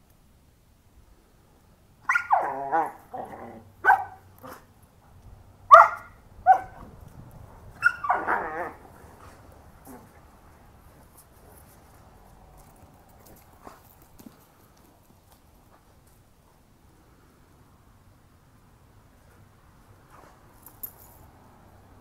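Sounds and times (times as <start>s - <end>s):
dogs barking and yelping: 2.0s - 4.7s, 5.7s - 6.9s, 7.7s - 10.2s.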